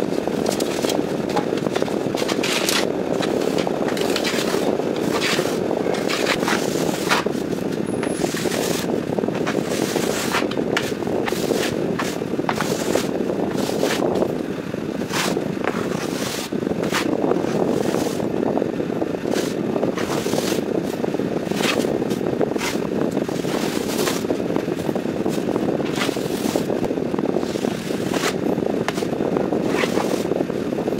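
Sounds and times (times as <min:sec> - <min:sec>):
steady low rush: 0:00.0 - 0:30.9
trowel scraping on wall: 0:00.5 - 0:07.3, 0:15.1 - 0:17.1, 0:29.7 - 0:30.2.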